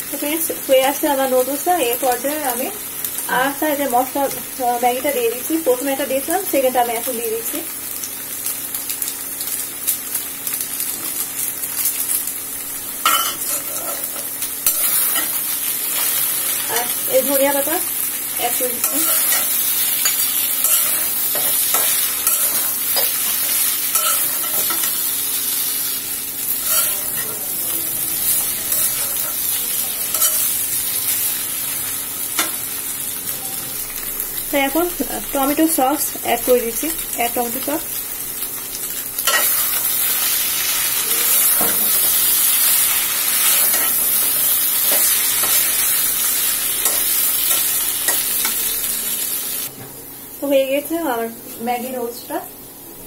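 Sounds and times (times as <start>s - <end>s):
noodles sizzling in a pan: 0.0s - 53.0s
metal spatula scraping a pan: 18.8s - 25.0s, 26.6s - 27.4s, 30.1s - 30.5s.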